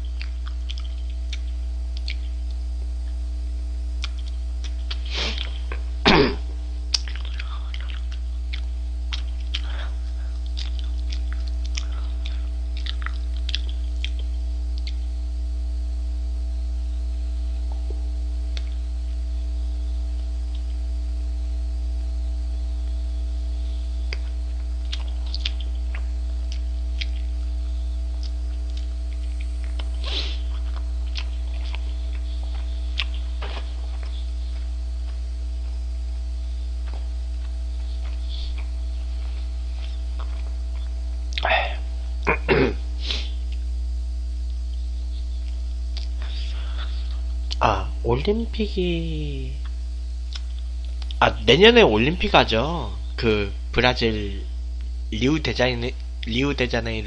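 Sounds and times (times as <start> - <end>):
chewing with mouth clicks: 0.0 - 3.2, 4.0 - 5.8, 6.9 - 15.1, 24.1 - 41.5, 44.4 - 47.6, 49.6 - 51.2
low electrical hum: 0.0 - 57.0.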